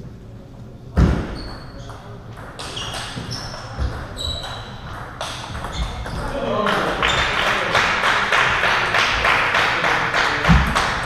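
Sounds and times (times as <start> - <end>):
table tennis balls knocking: 1.0 - 6.2
short high squeaks: 1.3 - 6.2.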